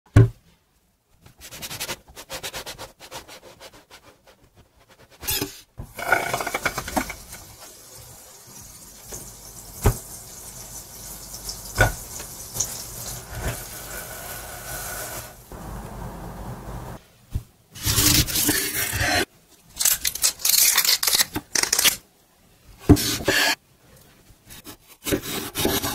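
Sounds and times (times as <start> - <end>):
butter sizzling in frying pan: 6.0 - 15.5.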